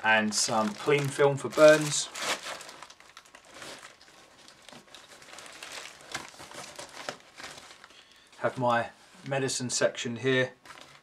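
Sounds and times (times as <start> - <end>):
plastic wrap crinkling: 0.0 - 9.6, 10.5 - 11.0.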